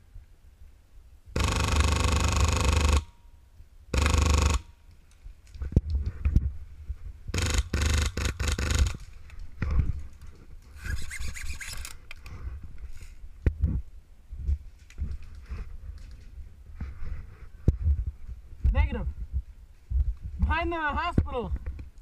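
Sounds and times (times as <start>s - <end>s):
airsoft rifle firing bursts: 1.4s - 3.1s, 3.9s - 4.8s, 7.3s - 9.1s.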